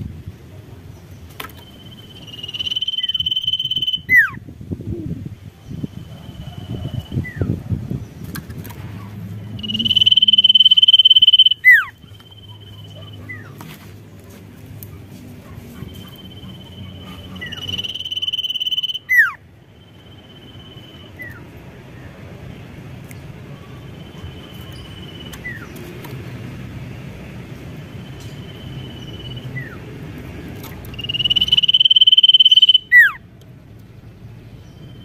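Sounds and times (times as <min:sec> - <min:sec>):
bird singing high whistles: 0:01.6 - 0:04.4, 0:09.6 - 0:13.1, 0:16.0 - 0:19.4, 0:30.9 - 0:33.2.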